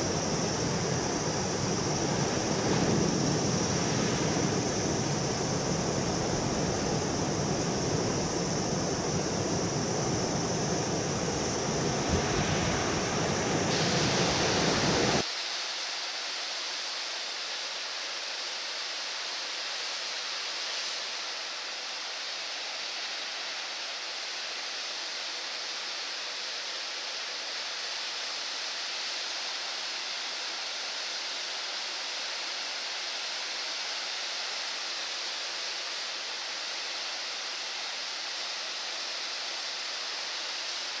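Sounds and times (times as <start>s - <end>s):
heavy surf roaring: 0.0s - 15.2s.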